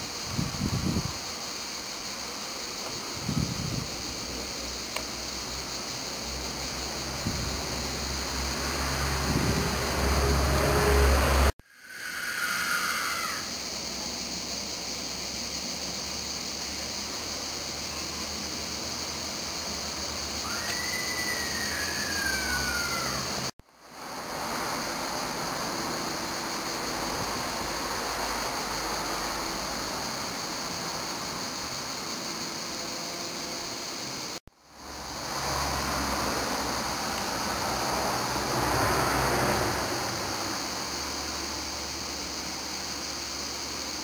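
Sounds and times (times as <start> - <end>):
steady background hiss: 0.0 - 44.0
faint whistled call: 11.7 - 13.4, 20.4 - 23.2.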